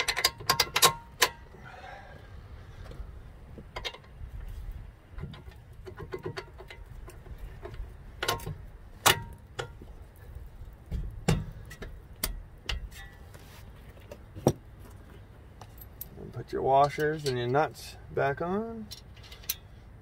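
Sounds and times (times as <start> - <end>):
metal bolts clicking and clinking: 0.0 - 1.6, 3.7 - 4.2, 5.1 - 9.8, 15.6 - 17.9, 18.8 - 19.8.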